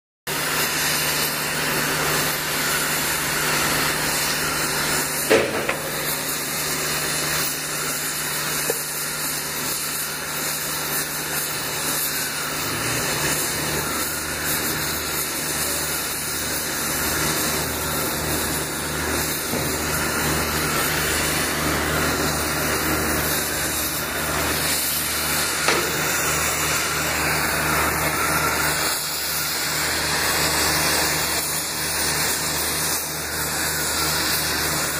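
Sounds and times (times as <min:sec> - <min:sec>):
cutting torch jet hissing: 0:00.3 - 0:34.9
sharp pop: 0:05.3 - 0:05.9.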